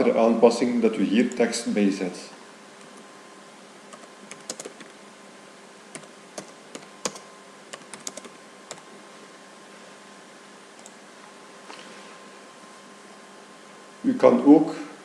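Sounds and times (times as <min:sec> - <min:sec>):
faint steady hum: 0:00.0 - 0:15.0
computer keyboard keys clicking: 0:03.9 - 0:04.9, 0:06.0 - 0:08.8.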